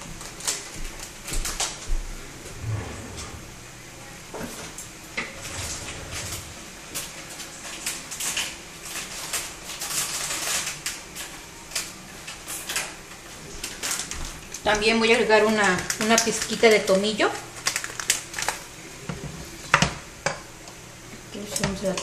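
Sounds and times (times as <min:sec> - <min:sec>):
vegetables frying in oil: 0:06.6 - 0:22.0.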